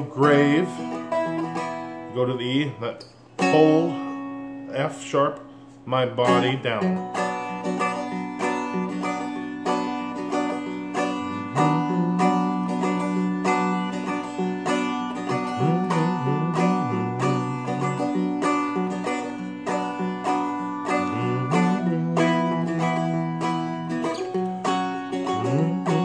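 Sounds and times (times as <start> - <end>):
strummed string instrument: 0.0 - 26.0
person humming: 11.2 - 14.0, 15.2 - 18.2, 20.9 - 23.8, 25.2 - 26.0.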